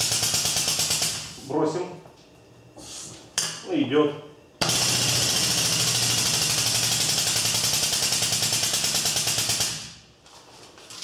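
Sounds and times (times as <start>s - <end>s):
hydraulic pump hissing and pulsing: 4.6s - 8.7s.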